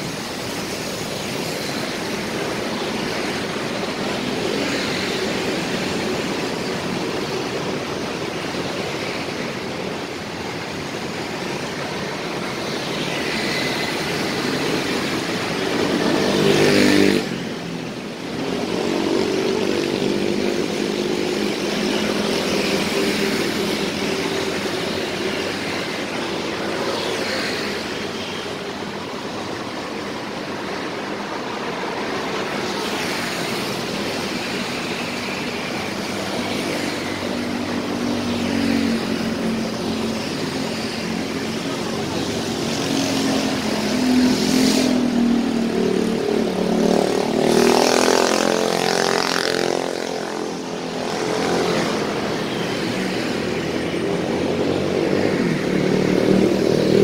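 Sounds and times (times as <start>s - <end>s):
tyre and engine noise: 0.0s - 57.0s
cars driving past: 13.2s - 30.3s, 31.5s - 57.0s.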